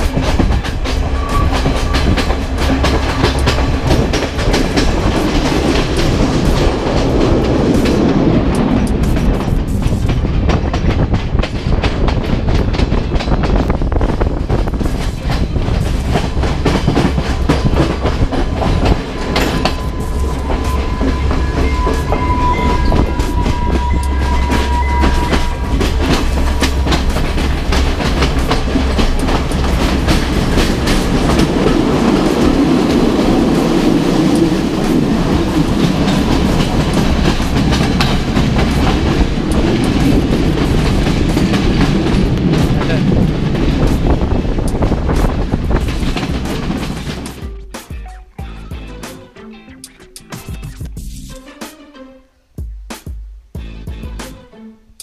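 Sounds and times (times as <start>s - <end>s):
wheels clicking over rails: 0.0s - 48.1s
train rumbling: 0.0s - 55.0s
thin high tone: 18.6s - 27.7s.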